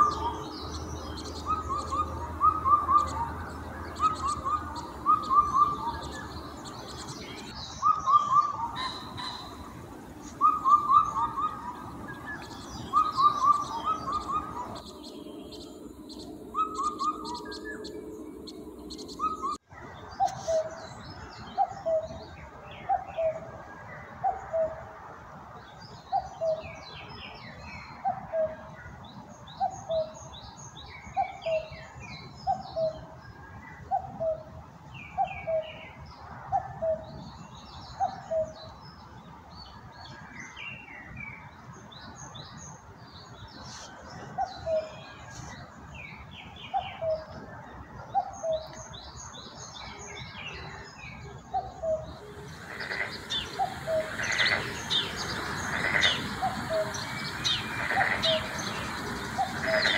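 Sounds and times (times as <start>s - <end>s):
low bird call: 0.0s - 19.6s, 51.5s - 59.9s
small birds chirping: 0.0s - 24.7s, 25.7s - 59.9s.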